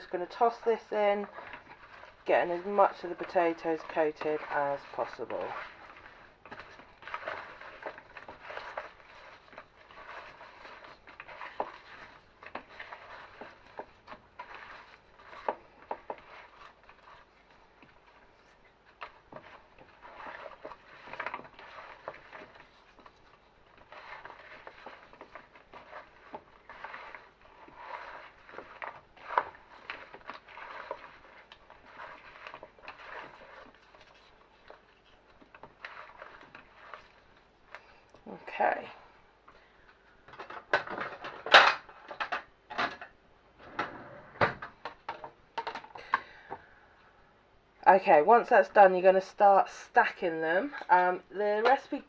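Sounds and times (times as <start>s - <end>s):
potato slices tossed in a bowl: 0.0s - 39.0s, 48.0s - 52.0s.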